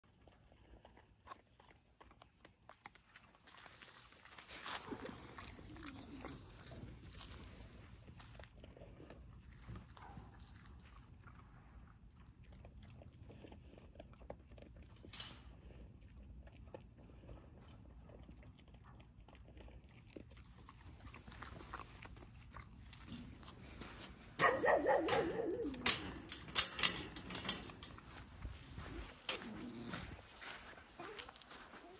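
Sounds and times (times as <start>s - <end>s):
faint rustles and clicks: 20.5s - 31.9s
dog whining: 24.4s - 26.3s.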